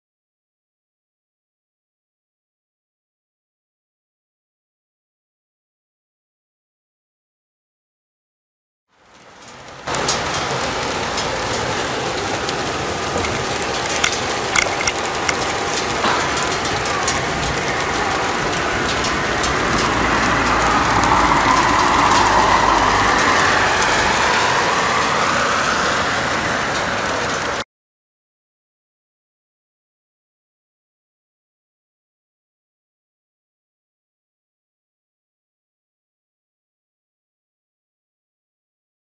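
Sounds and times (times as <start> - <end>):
heavy rain falling: 8.9 - 27.6
tyres swishing on wet road: 8.9 - 27.6
sharp raindrop ticks: 9.0 - 27.6.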